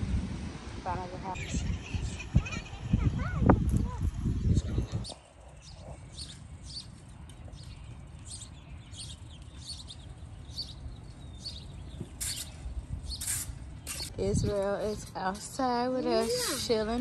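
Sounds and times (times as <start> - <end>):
rake scraping: 12.0 - 17.0
leaf rake scratching through mulch: 12.1 - 17.0.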